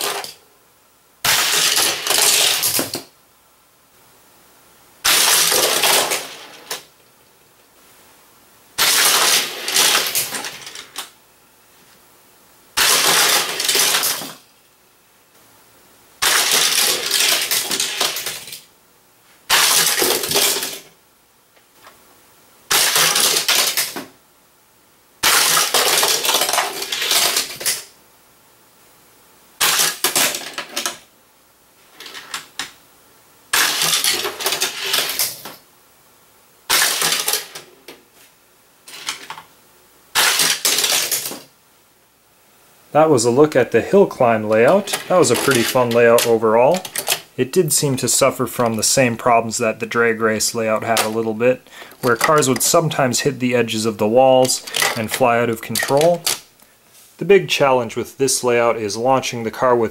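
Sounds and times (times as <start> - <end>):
toy cars rattling along plastic track: 0.0 - 0.4, 1.3 - 3.0, 5.0 - 6.9, 8.8 - 11.1, 12.8 - 14.4, 16.2 - 18.6, 19.5 - 20.9, 22.7 - 24.1, 25.2 - 27.9, 29.6 - 31.0, 33.5 - 35.6, 36.7 - 37.7, 38.9 - 39.4, 40.2 - 41.5, 44.5 - 47.2, 50.4 - 53.2, 54.4 - 56.4
toy track launcher snapping: 0.0 - 0.4, 1.2 - 3.1, 5.0 - 6.9, 8.8 - 11.1, 12.8 - 14.4, 16.2 - 18.6, 19.5 - 20.9, 22.7 - 24.1, 25.2 - 27.9, 29.6 - 31.0, 33.5 - 35.6, 36.7 - 37.7, 38.9 - 39.4, 40.1 - 41.5, 44.6 - 47.2, 54.4 - 56.4.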